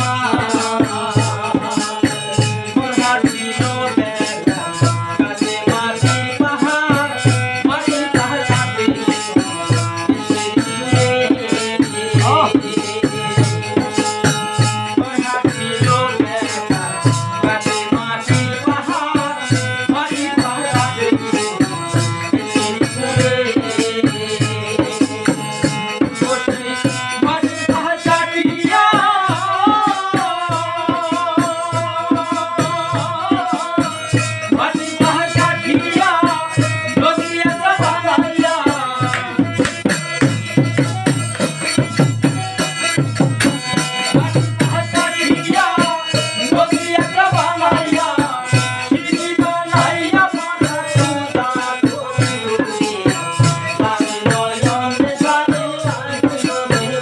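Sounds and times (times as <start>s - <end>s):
barrel drum played by hand: 0.0s - 57.0s
harmonium chords: 0.0s - 57.0s
men singing: 0.0s - 57.0s.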